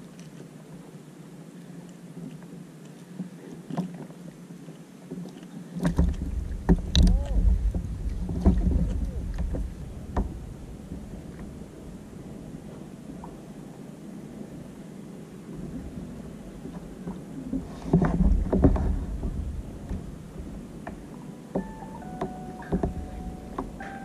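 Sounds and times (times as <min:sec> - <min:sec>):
faint wind: 0:00.0 - 0:24.0
water noise: 0:00.0 - 0:24.0
low rumble: 0:06.1 - 0:12.7, 0:18.2 - 0:20.8, 0:21.6 - 0:24.0.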